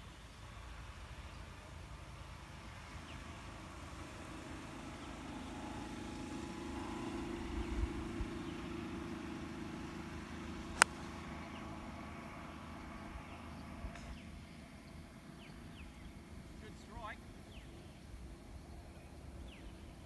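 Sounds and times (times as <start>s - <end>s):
low motor hum: 0.0s - 20.0s
golf club striking ball: 10.7s - 11.3s.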